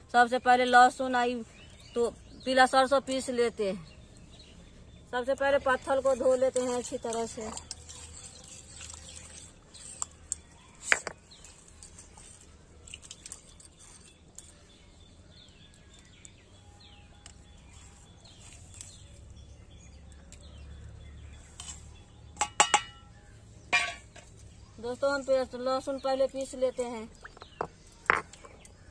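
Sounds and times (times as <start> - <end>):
hands rubbing stone with water: 5.8 - 14.8.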